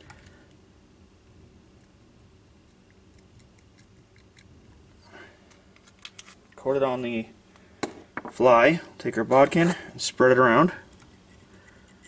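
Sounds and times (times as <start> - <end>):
soft breath: 5.0 - 5.6.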